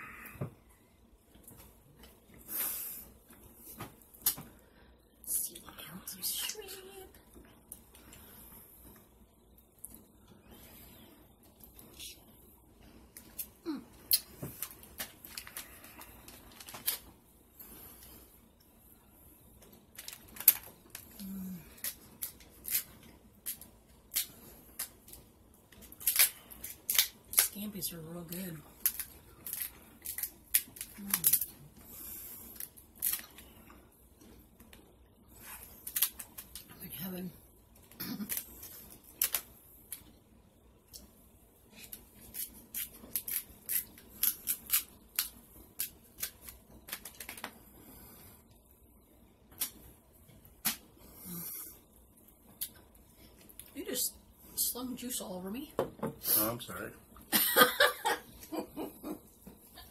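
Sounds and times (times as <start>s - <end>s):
person humming: 13.6s - 14.0s, 21.2s - 21.7s
crab shell cracking: 25.8s - 27.6s, 28.8s - 31.5s, 41.9s - 47.5s.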